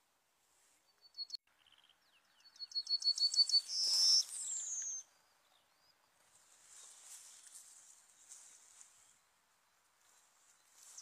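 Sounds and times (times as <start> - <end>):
yellowhammer singing: 0.9 - 6.0.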